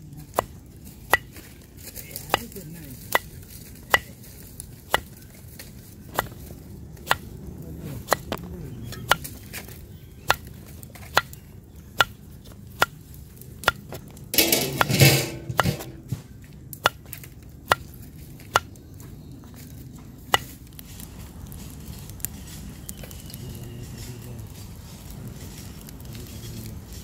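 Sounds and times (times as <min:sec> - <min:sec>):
rustling clatter: 0:14.3 - 0:16.4.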